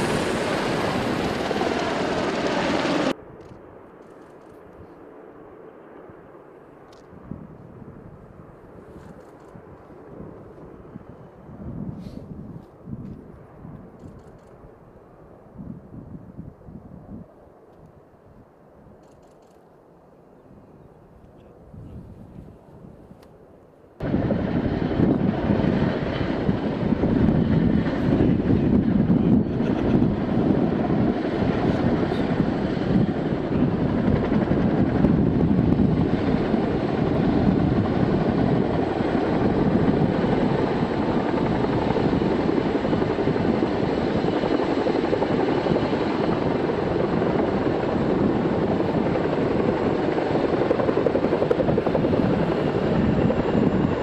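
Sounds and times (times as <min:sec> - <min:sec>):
helicopter rotors and turbines: 0:00.0 - 0:54.0.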